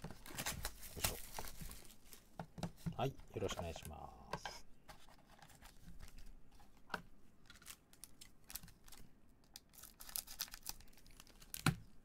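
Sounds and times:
wrapper crinkling: 0:00.1 - 0:02.2, 0:07.4 - 0:11.7.

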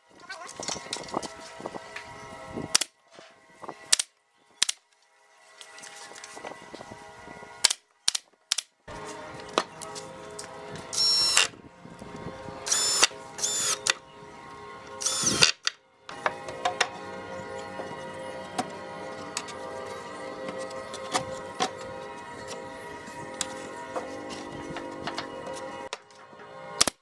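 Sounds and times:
cordless drill whine: 0:10.9 - 0:14.0, 0:15.0 - 0:15.6.

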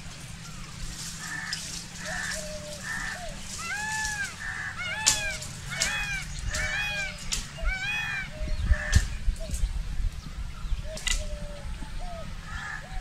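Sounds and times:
peacock honking calls: 0:00.0 - 0:09.1.

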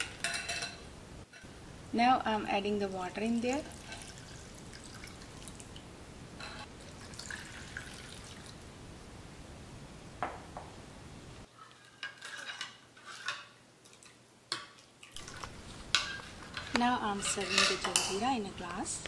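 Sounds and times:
water splashing into bowl: 0:06.8 - 0:08.6
metal spoon stirring liquid: 0:11.6 - 0:18.3.

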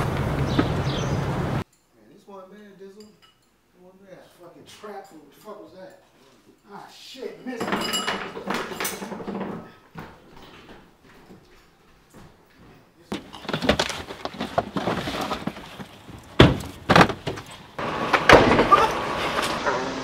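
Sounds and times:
knocks and bumps of movement: 0:13.1 - 0:18.8.

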